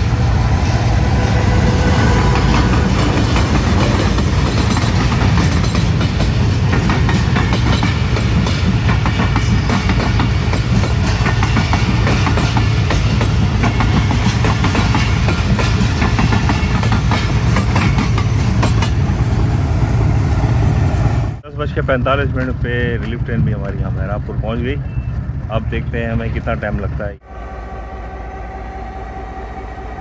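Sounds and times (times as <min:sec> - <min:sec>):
train wheels clacking over rail joints: 0:02.3 - 0:19.0, 0:21.8 - 0:23.8.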